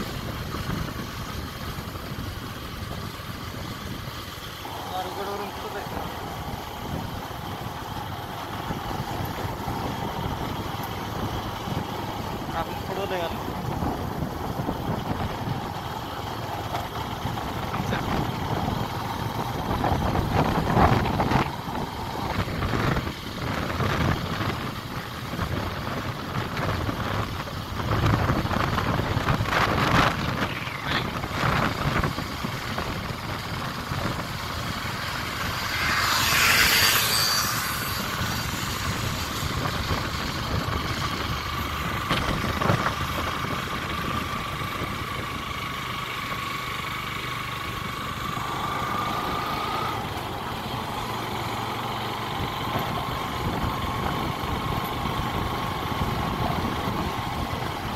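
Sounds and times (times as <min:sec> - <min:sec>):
vehicle engine running: 0:00.0 - 0:57.9
wind buffeting microphone: 0:05.7 - 0:45.5, 0:52.2 - 0:57.9.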